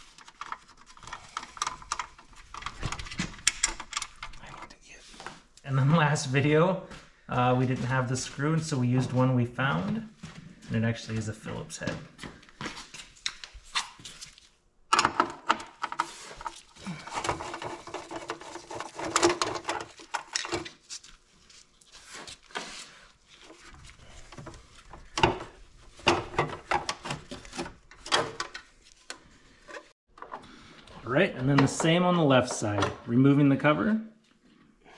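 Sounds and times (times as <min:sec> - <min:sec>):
hand tools and bolts clicking: 0:00.2 - 0:04.5
rustling: 0:16.0 - 0:26.0.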